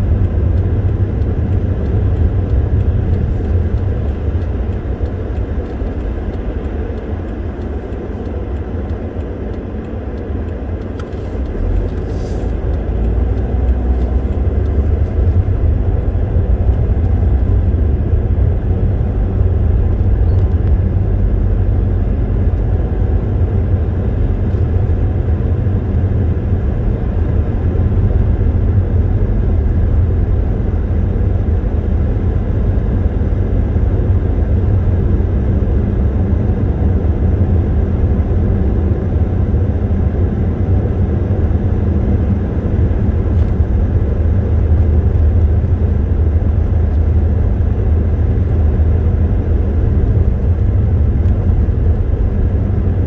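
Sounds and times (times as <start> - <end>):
car engine and tyre rumble: 0.0 - 53.0.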